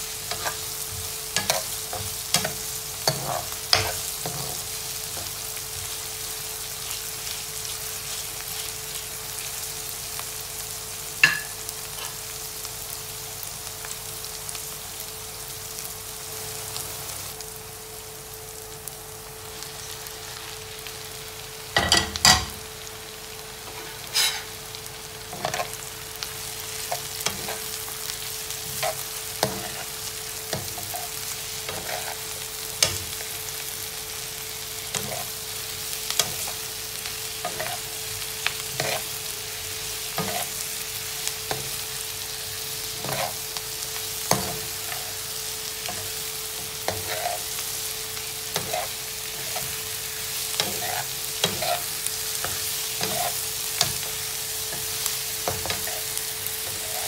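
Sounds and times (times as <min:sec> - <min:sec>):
mushrooms and onion sizzling in pan: 0:00.0 - 0:57.0
spatula scraping and tapping pan: 0:00.3 - 0:04.6, 0:23.7 - 0:24.5.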